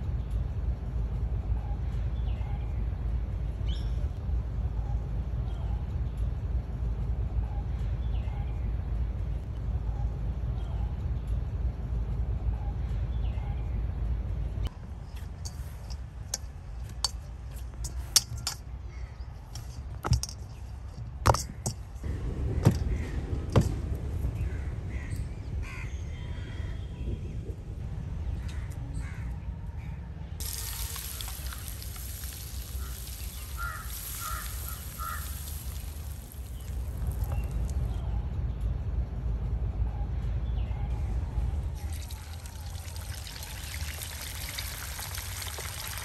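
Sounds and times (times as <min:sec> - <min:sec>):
sharp knocks and taps: 0:19.5 - 0:22.0
hot oil sizzling in pan: 0:30.4 - 0:37.7, 0:41.8 - 0:46.0
short bird calls: 0:32.5 - 0:37.4.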